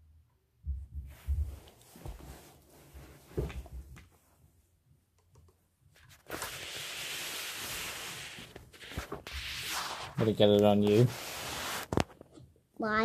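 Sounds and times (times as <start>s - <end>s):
handling rubbing hiss: 6.6s - 8.6s, 9.5s - 11.9s.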